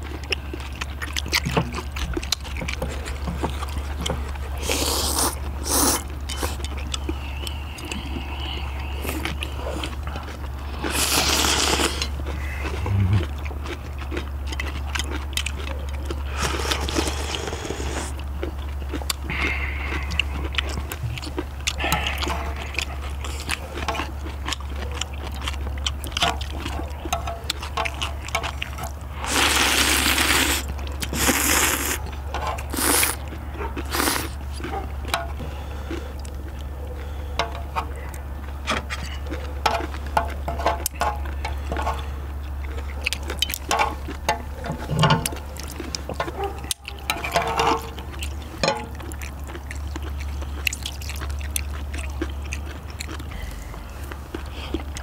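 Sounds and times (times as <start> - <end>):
noodles slurped and chewed: 0.0 - 55.0
low hum: 5.4 - 15.4.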